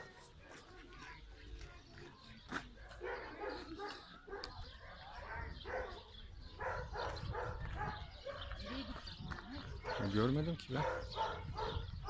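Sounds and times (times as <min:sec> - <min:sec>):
dog barking: 0:02.9 - 0:09.1, 0:09.8 - 0:12.0.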